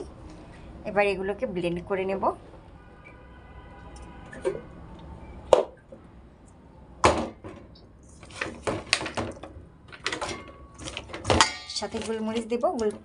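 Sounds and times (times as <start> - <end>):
utensils clattering against bowl: 10.0 - 13.0.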